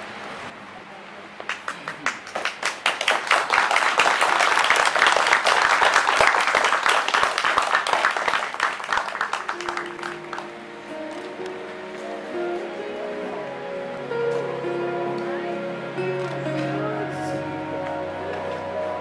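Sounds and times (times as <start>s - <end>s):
crowd applauding: 1.5s - 10.9s
music: 9.4s - 19.0s.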